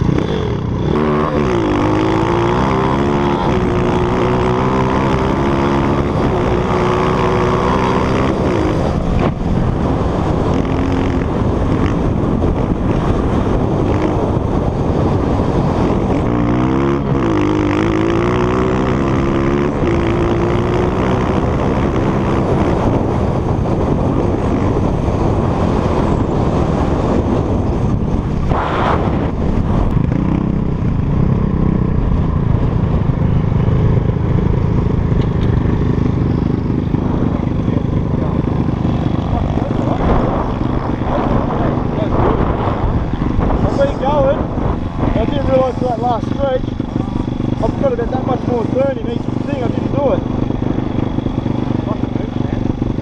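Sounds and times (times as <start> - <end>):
dirt bike engine revving: 0.0 - 53.0
wind noise: 0.0 - 53.0.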